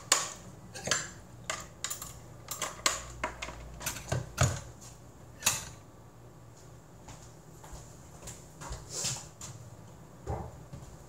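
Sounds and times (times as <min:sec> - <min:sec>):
mixer beaters clicking and rattling: 0:00.0 - 0:04.7, 0:05.4 - 0:05.8.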